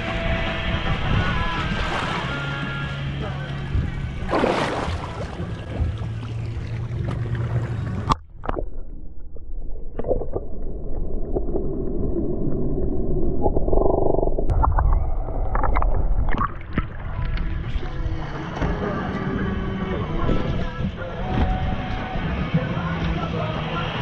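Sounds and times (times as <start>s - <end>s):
wind on microphone: 0.0s - 6.2s
low underwater rumble: 0.0s - 23.3s
boat engine hum: 0.0s - 24.0s
water gurgling: 3.7s - 19.1s.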